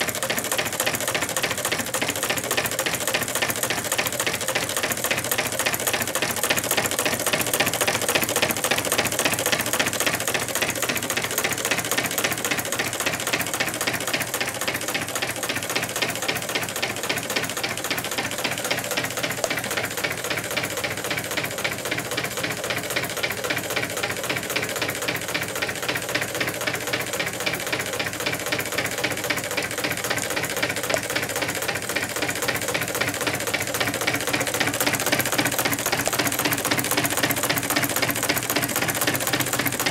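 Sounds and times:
stirling engine clicking clatter: 0.0s - 39.9s.

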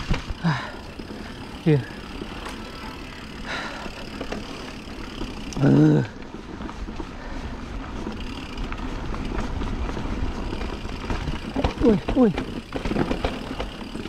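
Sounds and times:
bike tyres rolling on dirt: 0.0s - 14.0s.

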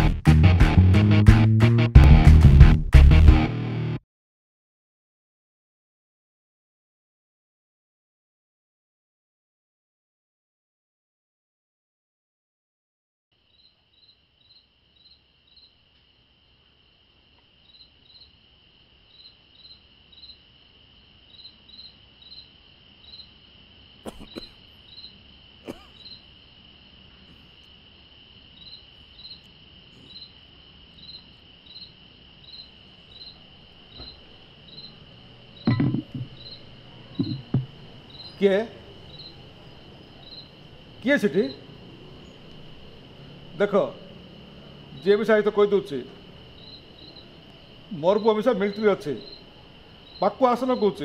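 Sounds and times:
cricket chirps: 13.3s - 51.0s
crickets trilling: 13.4s - 51.0s
knock: 35.7s - 36.3s, 37.2s - 37.8s.

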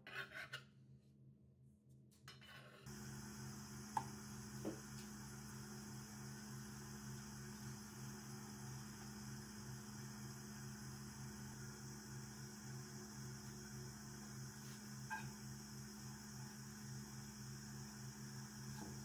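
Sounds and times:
knife scraping cutting board: 0.0s - 0.7s.

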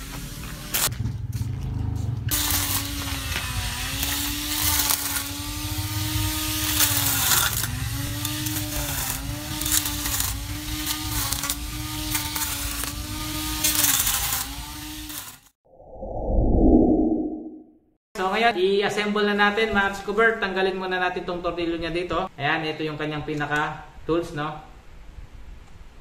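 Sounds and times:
hiss of grass being cut: 0.0s - 0.9s, 2.2s - 15.4s
electric grass trimmer whining: 0.0s - 15.5s.

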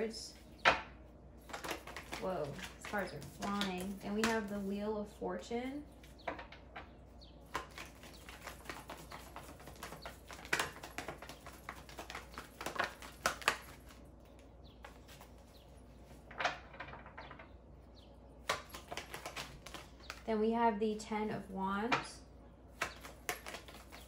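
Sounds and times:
cards being shuffled: 1.4s - 4.7s, 7.4s - 14.1s, 18.4s - 20.2s, 22.8s - 24.0s.

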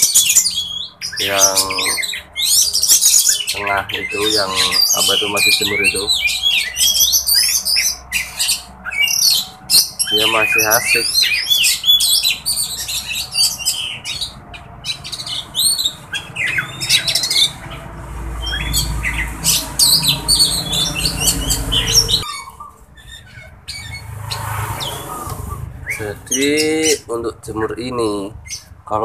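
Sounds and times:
birds chirping and squawking: 0.0s - 29.0s
low steady rumble: 22.8s - 28.4s.

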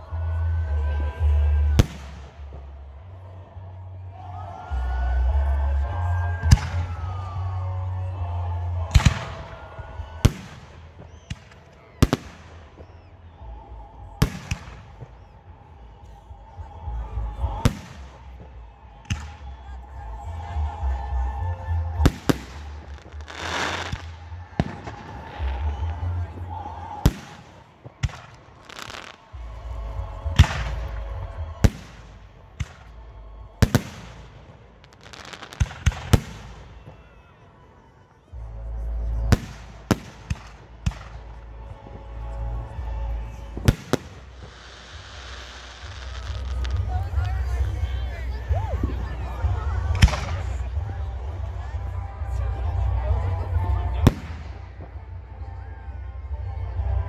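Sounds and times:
faint fireworks crackling: 0.0s - 57.0s
fireworks bangs: 22.0s - 29.4s, 33.6s - 37.1s, 43.6s - 47.9s.

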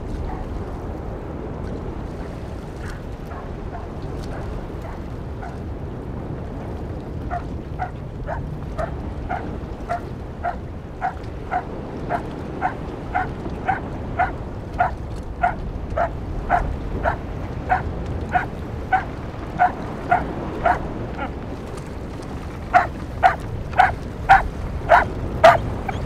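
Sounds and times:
choppy water: 0.0s - 26.0s
wind rushing: 0.0s - 26.0s
dog barking: 2.8s - 5.6s, 7.3s - 21.3s, 22.7s - 26.0s.

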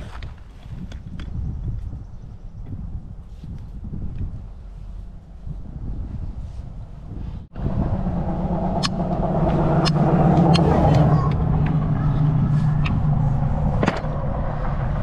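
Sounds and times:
engine idling: 6.8s - 15.0s
sharp clicks: 8.7s - 11.8s.

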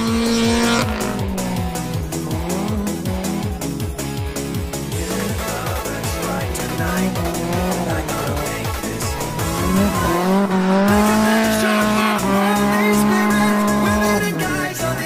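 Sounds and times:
car engine revving high: 0.0s - 14.5s
music with thudding beat: 0.0s - 15.0s
tyres squealing: 5.3s - 14.6s.

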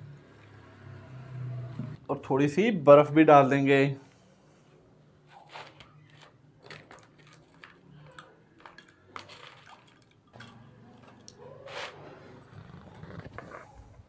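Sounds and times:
ice cubes clinking into liquid: 6.6s - 11.3s.

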